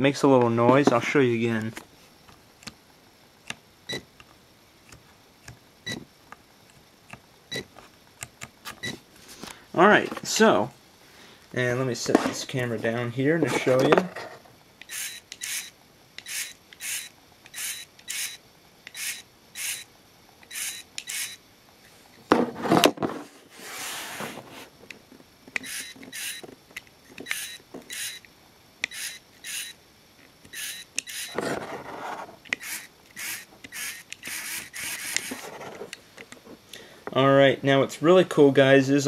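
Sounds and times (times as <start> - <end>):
servo motor whirring: 14.8 - 21.4, 25.6 - 26.4, 27.2 - 28.2, 28.8 - 29.8, 30.5 - 35.8
handling rub: 23.2 - 24.8.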